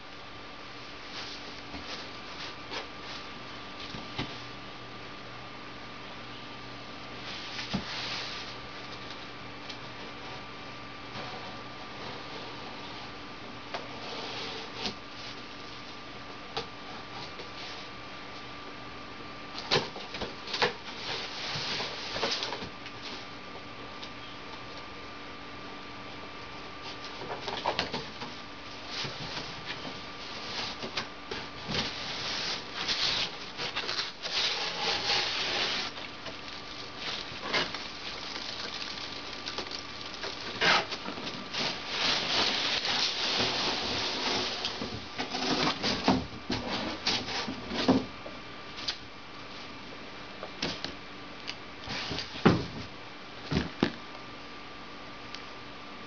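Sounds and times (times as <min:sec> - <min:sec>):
packing peanuts rustling: 0:31.8 - 0:44.6.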